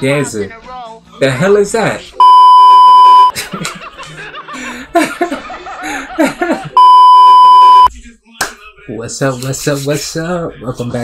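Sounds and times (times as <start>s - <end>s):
steady test-tone beep: 2.2s - 3.3s, 6.8s - 7.9s
man laughing: 3.3s - 6.8s.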